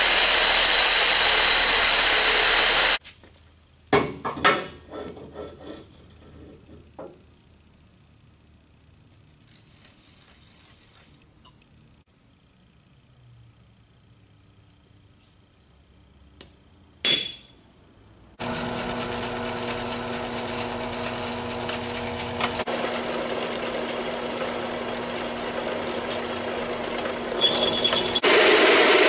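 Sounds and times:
drill bit cutting steel: 0.0 - 3.0, 18.4 - 29.0
drill press motor hum: 0.0 - 3.0, 18.4 - 29.0.

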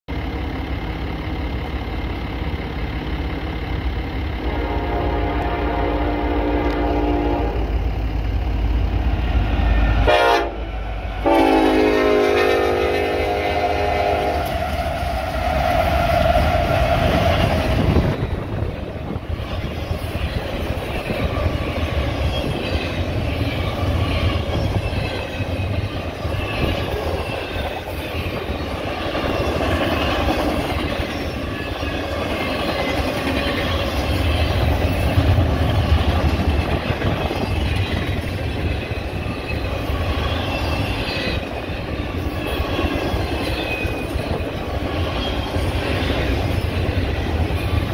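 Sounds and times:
deep rumble of wheels on rail: 0.1 - 47.9
diesel locomotives passing: 0.1 - 47.9
high wheel squeals: 19.4 - 35.2, 37.0 - 47.9.

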